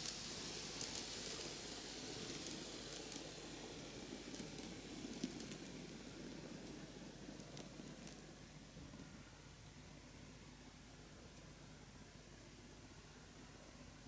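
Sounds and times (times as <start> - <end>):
model train motor whirring: 0.0 - 8.2
light clicks of train wheels: 0.0 - 9.9, 10.6 - 11.9.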